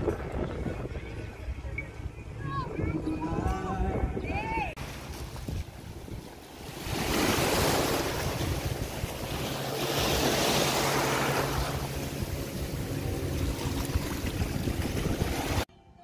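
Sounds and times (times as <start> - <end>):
wind buffeting microphone: 0.0 - 15.7
sea waves washing over rocks: 4.8 - 15.7.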